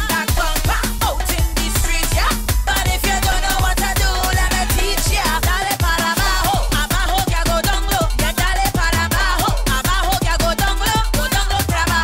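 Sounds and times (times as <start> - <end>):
dance music with heavy bass: 0.0 - 12.0
person singing: 0.0 - 12.0.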